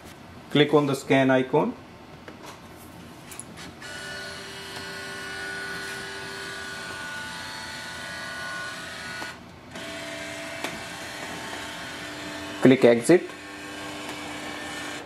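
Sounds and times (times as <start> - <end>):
scanner motor whining: 3.8 - 15.0.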